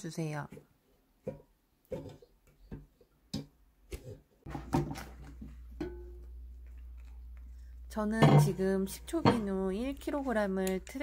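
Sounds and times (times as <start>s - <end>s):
spatula knocking and scraping container: 0.5s - 6.9s, 8.1s - 10.3s.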